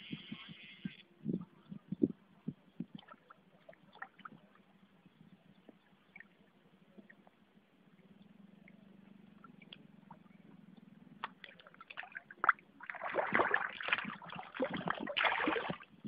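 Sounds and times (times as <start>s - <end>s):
fish splashing in water: 11.2s - 15.9s.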